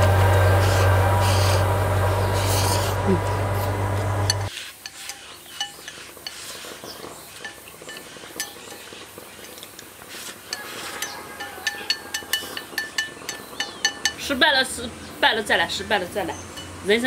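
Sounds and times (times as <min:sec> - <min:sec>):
steady low hum: 0:00.0 - 0:04.5
chopsticks clinking on ceramic bowl: 0:10.5 - 0:14.3.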